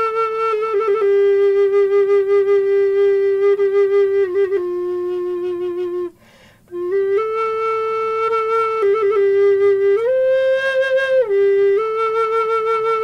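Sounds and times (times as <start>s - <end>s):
wooden flute long notes: 0.0s - 13.0s.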